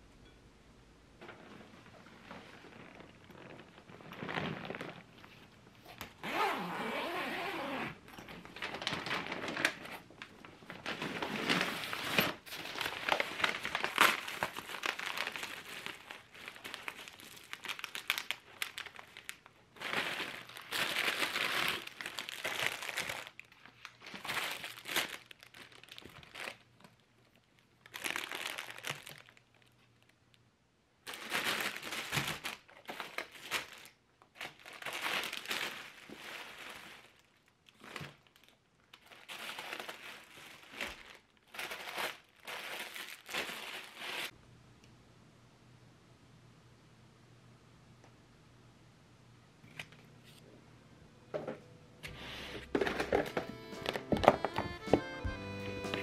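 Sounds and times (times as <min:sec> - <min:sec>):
plastic bags crinkling: 0:01.3 - 0:30.2, 0:31.0 - 0:44.4.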